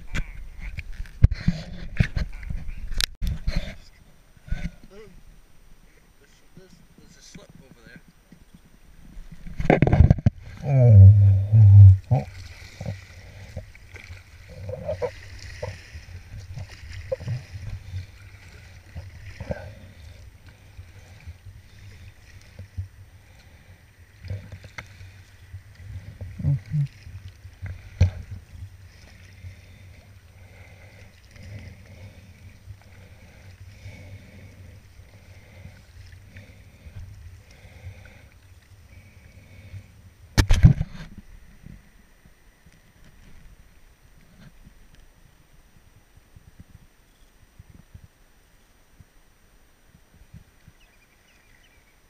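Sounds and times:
paddle splashing in water: 11.4s - 39.3s.

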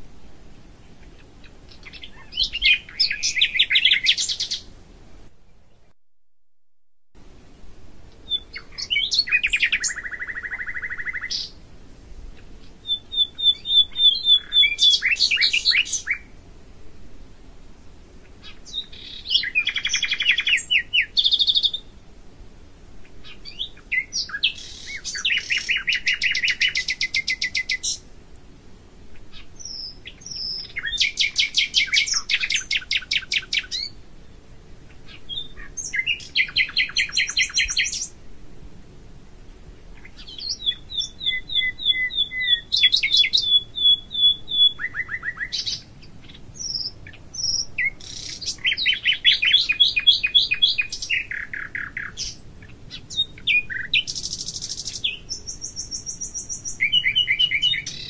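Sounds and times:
songbird trilling and whistling: 1.0s - 4.7s, 8.2s - 11.6s, 12.6s - 16.3s, 18.4s - 21.9s, 23.2s - 28.0s, 29.3s - 34.0s, 34.9s - 38.2s, 40.0s - 58.0s.

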